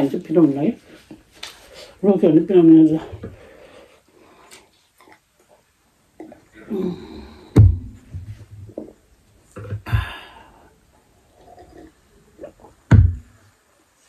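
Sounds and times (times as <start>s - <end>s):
heavy thumps against table: 7.6s - 8.5s, 12.9s - 13.3s
person breathing hard and hissing: 9.8s - 10.8s.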